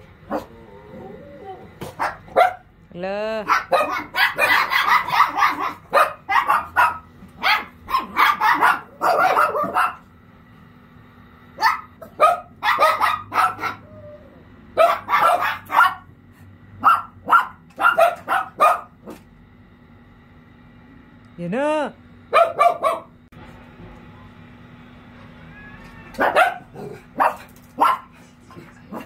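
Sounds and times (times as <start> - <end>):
small dogs barking and yapping: 0.1 - 2.7, 3.4 - 10.2, 11.5 - 19.3, 22.3 - 23.2, 25.1 - 29.0.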